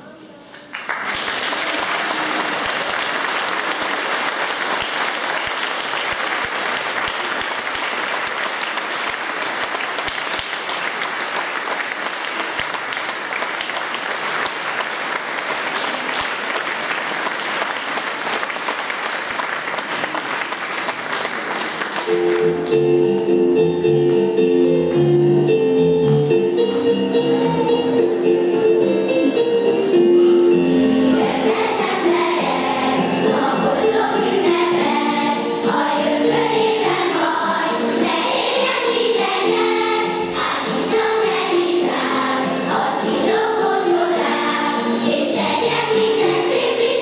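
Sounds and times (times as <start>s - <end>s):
audience applauding: 0.6s - 23.2s
instrumental music: 22.0s - 47.0s.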